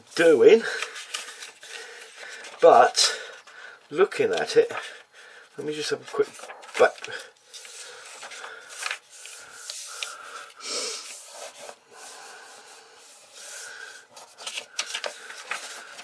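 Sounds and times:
paper pages rustling: 0.6s - 3.4s, 5.8s - 12.2s, 13.2s - 16.0s.

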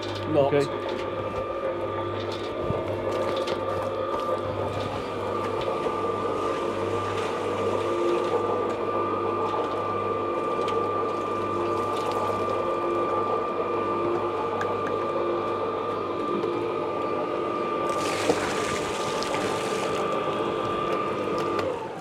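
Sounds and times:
cement mixer motor hum: 0.0s - 22.0s
water sloshing in drum: 17.9s - 20.2s.

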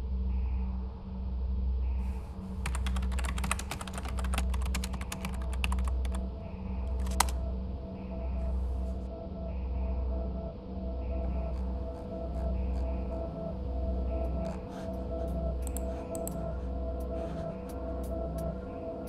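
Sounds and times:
low pulsing drone: 0.0s - 2.6s, 5.4s - 19.0s
typing on computer keyboard: 2.6s - 6.2s, 7.0s - 7.4s.

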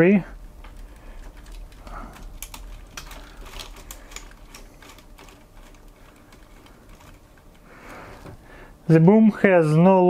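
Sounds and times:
plastic parts clicking and rattling: 0.6s - 8.4s.

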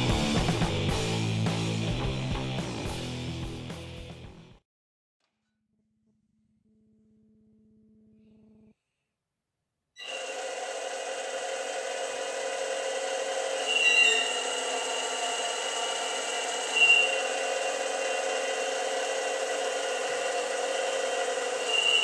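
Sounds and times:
hydraulic pump whirring and hissing: 10.0s - 22.0s.

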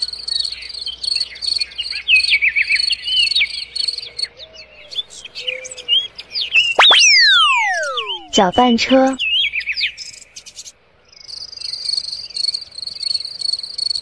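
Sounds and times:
birds chirping: 4.7s - 10.4s
rising whistle-like sweep: 6.8s - 8.4s.

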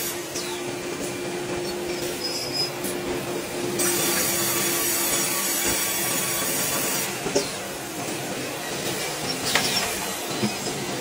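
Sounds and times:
saw cutting log: 3.8s - 7.5s.

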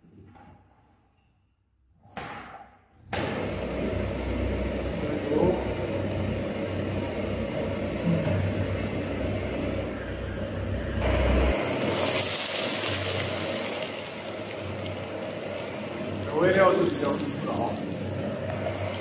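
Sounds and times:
gas stove burner rumbling: 3.1s - 19.0s
onion and garlic sizzling in oil: 5.7s - 19.0s.

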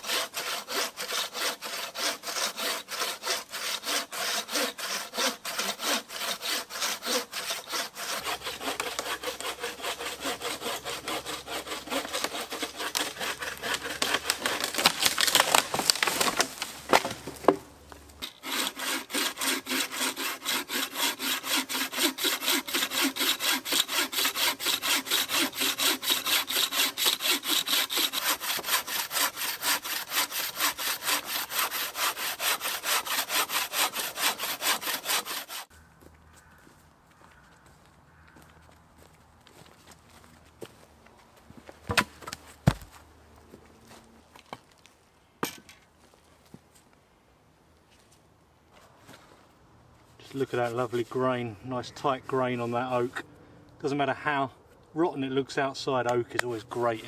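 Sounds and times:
bucksaw cutting wood: 0.0s - 17.6s, 18.2s - 35.7s, 41.9s - 43.0s.

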